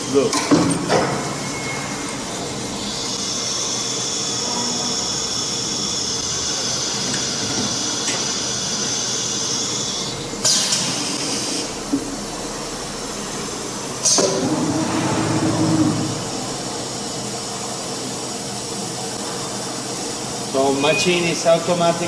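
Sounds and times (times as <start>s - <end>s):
cnc router hissing: 2.2s - 17.2s.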